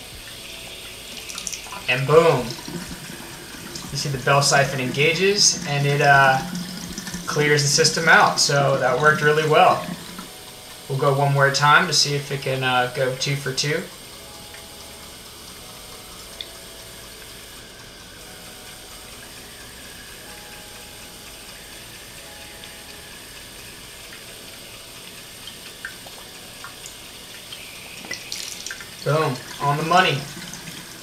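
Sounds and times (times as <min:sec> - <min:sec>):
water drips: 0:00.0 - 0:31.0
tap water pouring into jar: 0:00.2 - 0:10.3, 0:25.5 - 0:31.0.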